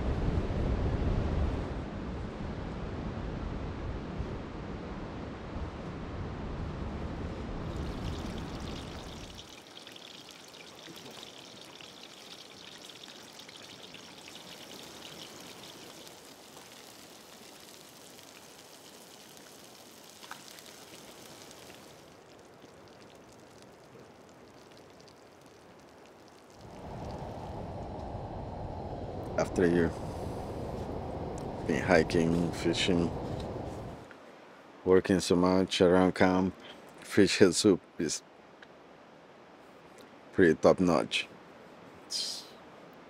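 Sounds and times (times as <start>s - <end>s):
fish sizzling in a frying pan: 7.8s - 22.1s
low rumble: 26.6s - 34.0s.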